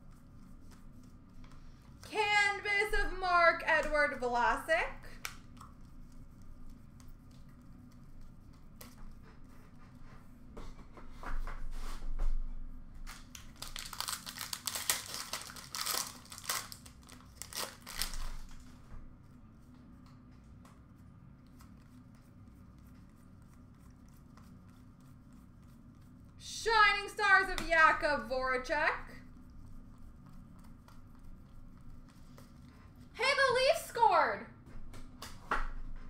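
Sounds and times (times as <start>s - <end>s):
wrapper tearing and crinkling: 13.4s - 18.6s.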